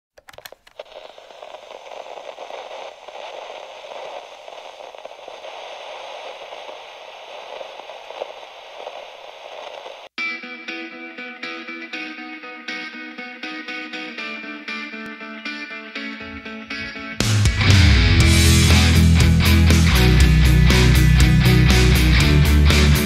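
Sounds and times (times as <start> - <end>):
crackling static: 0.1 - 10.2, 16.0 - 23.0
electric guitar music: 10.2 - 23.0.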